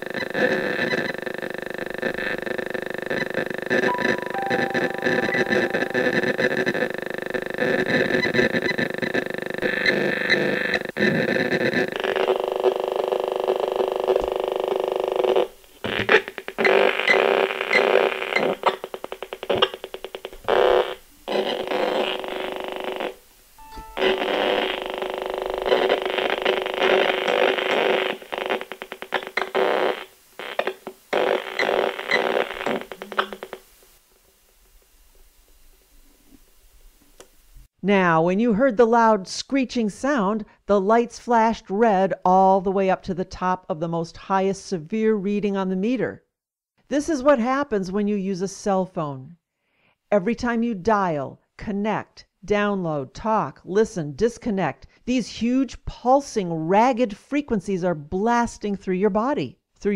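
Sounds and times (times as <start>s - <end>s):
meter screeching crackling buzz: 12.0s - 33.6s.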